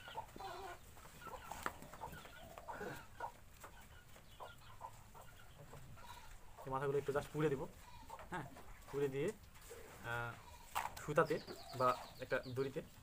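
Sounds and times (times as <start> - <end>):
faint bird calls: 0.0 - 3.3, 3.9 - 6.7, 9.6 - 12.7.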